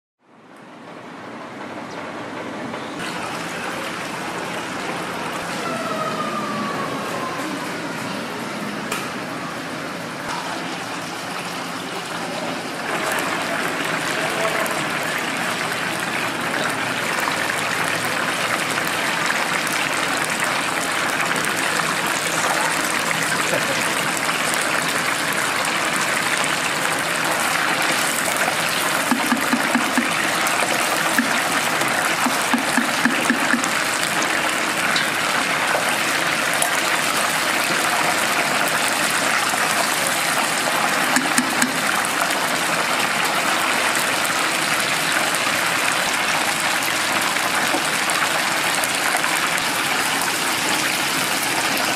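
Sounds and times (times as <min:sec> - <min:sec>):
street ambience: 0:00.3 - 0:18.0
chicken deep-frying in oil: 0:03.0 - 0:51.9.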